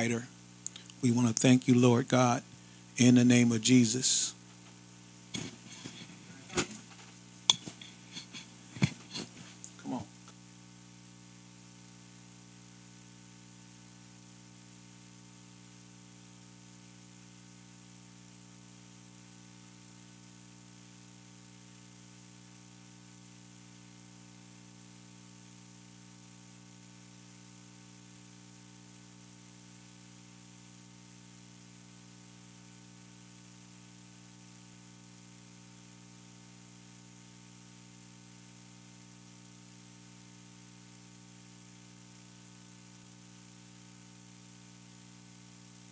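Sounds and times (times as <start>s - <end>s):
steady hiss and electrical hum: 0.0s - 45.9s.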